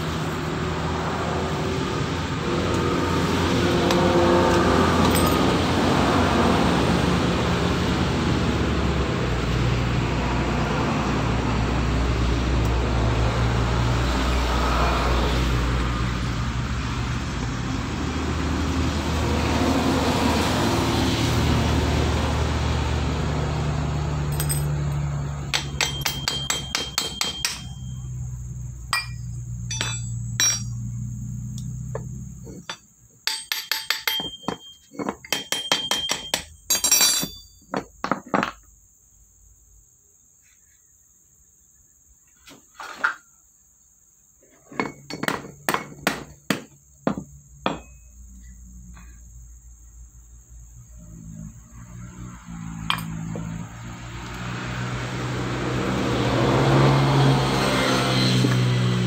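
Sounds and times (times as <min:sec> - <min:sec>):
road noise: 0:00.0 - 0:39.9, 0:43.9 - 0:59.0
metal tools clinking on housing: 0:05.0 - 0:05.5, 0:24.3 - 0:28.2, 0:28.9 - 0:31.0, 0:31.6 - 0:38.6, 0:52.9 - 0:53.2.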